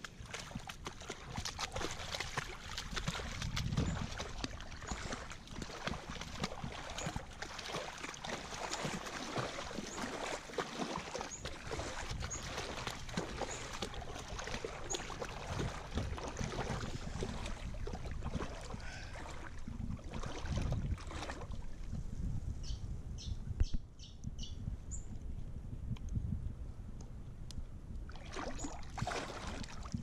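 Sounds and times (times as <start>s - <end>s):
water splashing: 0.0s - 21.8s, 28.1s - 30.0s.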